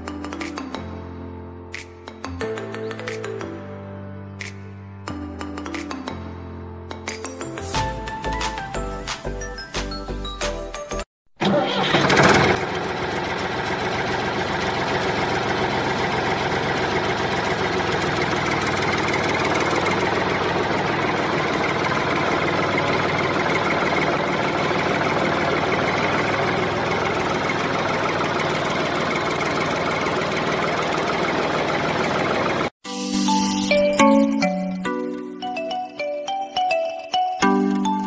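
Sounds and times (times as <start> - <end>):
diesel tractor engine idling: 11.4 - 32.7.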